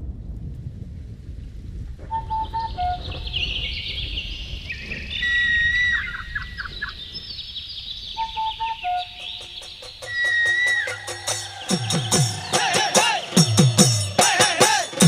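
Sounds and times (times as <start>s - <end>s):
low rumble: 0.0s - 8.2s
birds calling and chirping: 2.1s - 15.0s
descending bird call: 2.1s - 15.0s.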